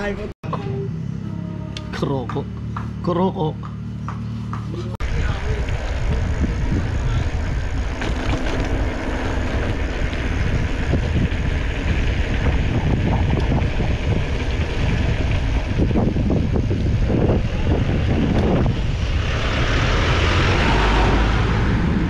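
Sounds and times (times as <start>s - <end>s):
wind rushing over microphone: 5.0s - 22.0s.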